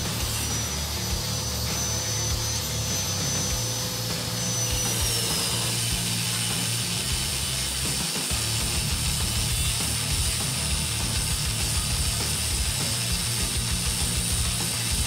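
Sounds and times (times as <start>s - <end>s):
angle grinder cutting metal: 0.0s - 15.0s.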